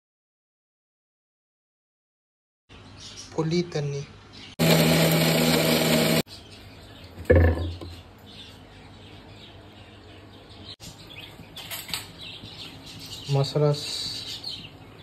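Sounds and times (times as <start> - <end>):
faint birds chirping: 2.7 - 15.0
mixer grinder whirring: 4.6 - 6.3.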